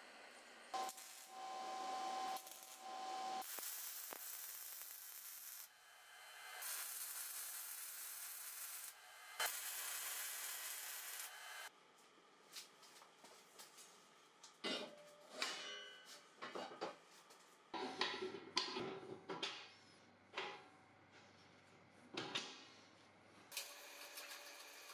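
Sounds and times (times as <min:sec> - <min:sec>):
welding arc hissing and crackling: 0:00.1 - 0:11.7, 0:23.5 - 0:24.9.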